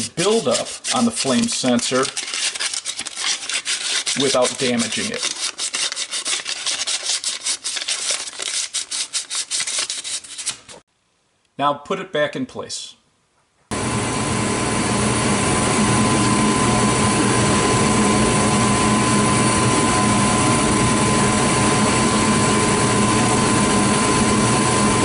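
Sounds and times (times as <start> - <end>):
furnace burner and fan rushing: 13.7 - 25.0.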